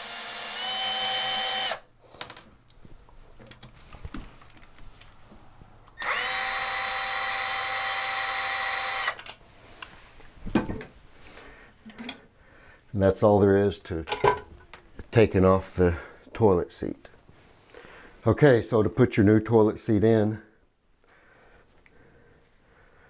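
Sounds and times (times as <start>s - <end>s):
cordless drill motor whine: 0.0s - 1.9s, 6.0s - 9.2s.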